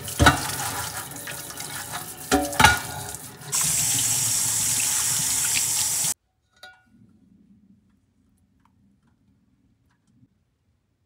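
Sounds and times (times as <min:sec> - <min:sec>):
tap water splashing on pan: 0:00.0 - 0:06.2
water rushing from tap: 0:00.0 - 0:06.2.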